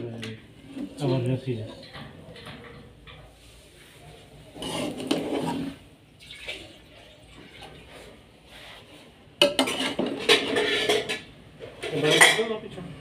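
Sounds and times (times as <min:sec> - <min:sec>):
spoon scraping rice in pot: 0:04.4 - 0:05.9, 0:07.9 - 0:11.2.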